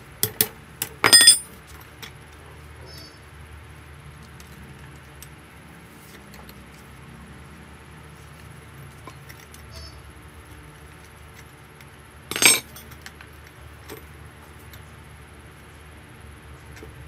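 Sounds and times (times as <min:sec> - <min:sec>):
faint metal clinks: 0:01.0 - 0:01.5, 0:12.3 - 0:12.9.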